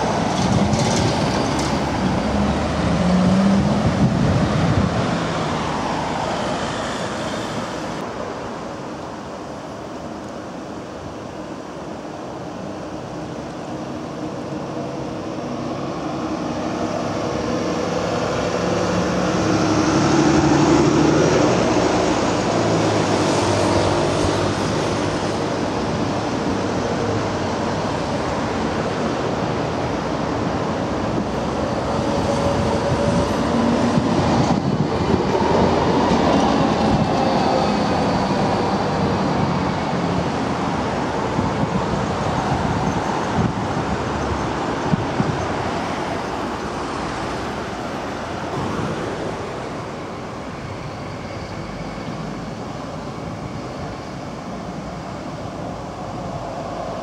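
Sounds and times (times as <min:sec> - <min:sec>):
passing road traffic: 0:00.0 - 0:57.0
tram wheels on rails: 0:00.0 - 0:57.0
tram electric traction hum: 0:11.4 - 0:57.0.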